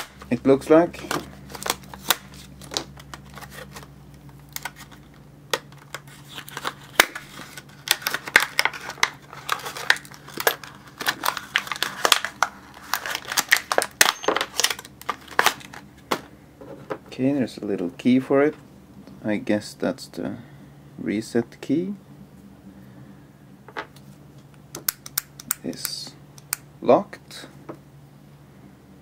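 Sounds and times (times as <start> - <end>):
plastic packaging crinkling and tearing: 1.0 - 15.9.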